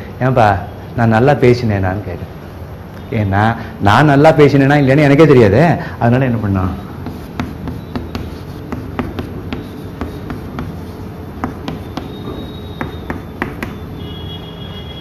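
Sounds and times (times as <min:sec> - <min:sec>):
chalk tapping on chalkboard: 0:07.0 - 0:14.0.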